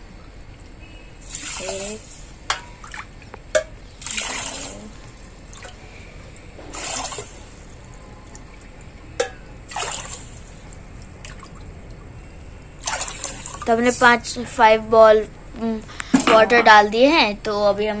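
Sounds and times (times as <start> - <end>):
water pouring into a pan: 1.2 - 2.3, 4.0 - 5.8, 6.7 - 10.6.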